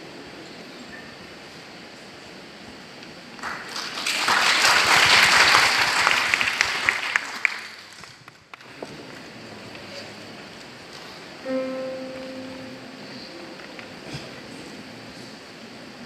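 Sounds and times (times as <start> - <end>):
audience applauding: 3.4 - 8.8.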